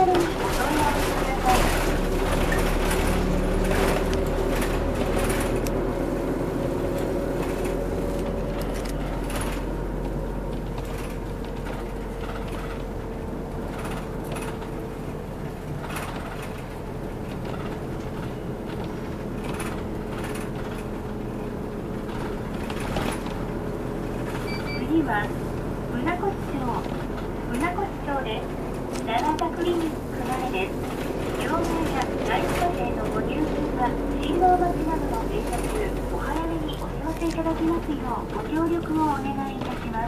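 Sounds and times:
bus engine and road drone: 0.0s - 40.0s
light cabin rattles: 0.0s - 40.0s.

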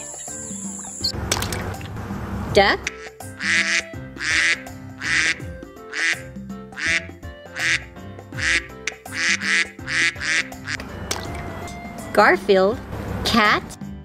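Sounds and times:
background music: 0.0s - 14.0s
duck quacking: 2.8s - 6.2s, 6.8s - 7.8s, 8.4s - 11.3s.

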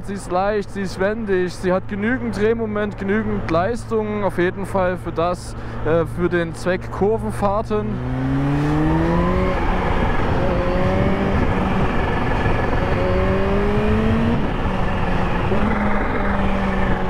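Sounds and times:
motorcycle engine accelerating: 7.6s - 17.0s
wind rush on microphone: 8.2s - 17.0s.

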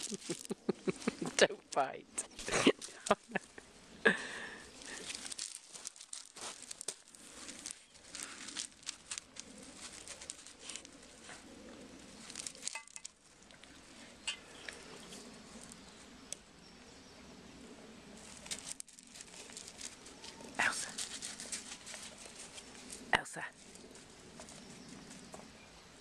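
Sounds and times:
paws crunching on gravel: 0.0s - 1.4s, 4.6s - 13.2s, 18.2s - 25.5s.

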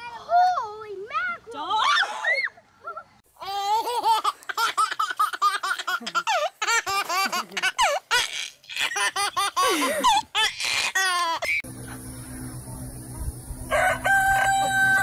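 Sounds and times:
baby giggling: 3.4s - 11.6s.

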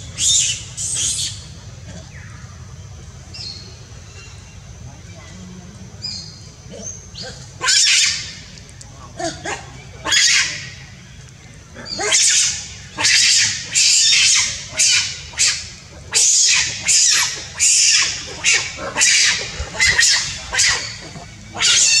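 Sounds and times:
monkey squealing: 7.6s - 8.4s, 9.4s - 10.8s, 11.9s - 22.0s.

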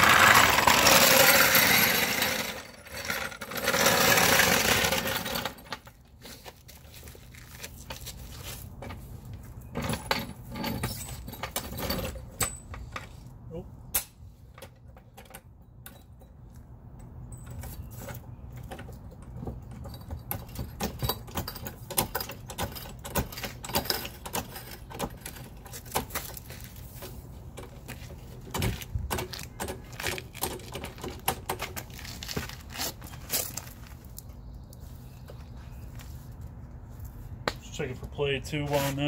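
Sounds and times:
floor jack clicking and rattling: 0.0s - 5.9s.

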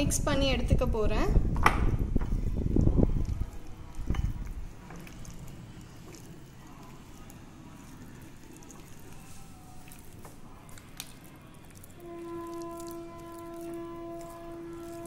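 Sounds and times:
wet squelching of hand mixing: 2.3s - 15.0s.

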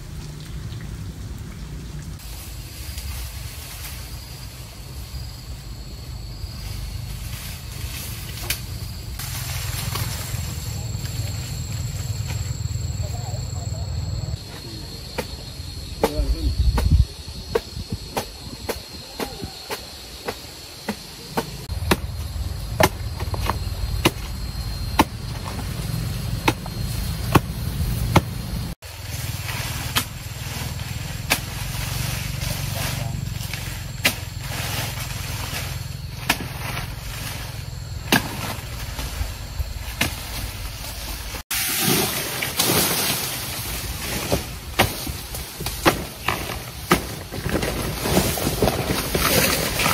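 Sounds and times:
loud hiss: 6.5s - 11.5s, 38.6s - 46.2s.

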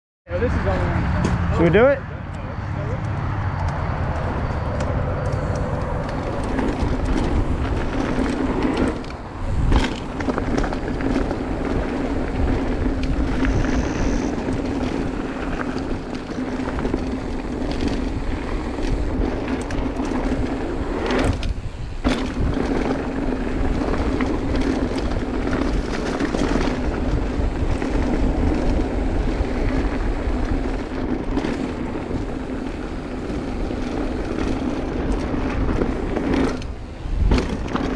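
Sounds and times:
wind rush over microphone: 0.4s - 37.9s
bike tyres on dirt: 2.8s - 37.9s
bike jolt: 4.8s - 37.9s.

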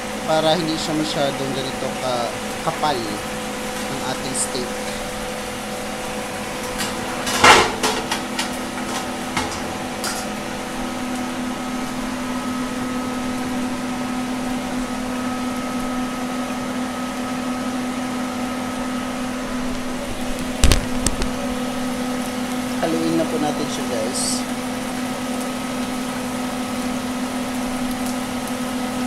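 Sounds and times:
oil sizzling: 0.0s - 29.0s
steady hum with held tones: 0.0s - 29.0s
metal cookware clattering: 6.8s - 8.2s.

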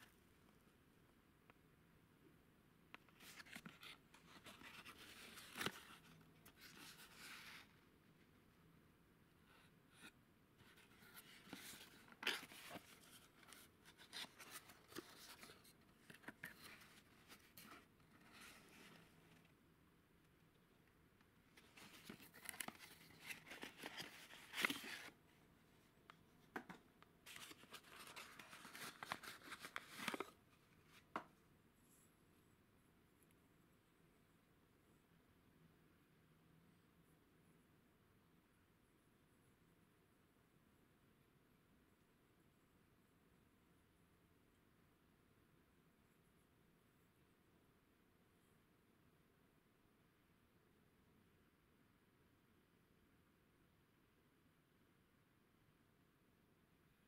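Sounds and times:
cardboard box rustling: 21.7s - 25.2s, 27.3s - 30.4s.

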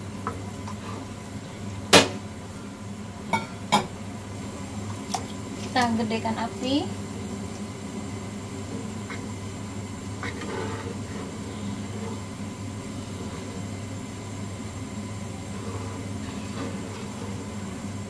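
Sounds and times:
spatula stirring sauce in wok: 8.0s - 18.0s.

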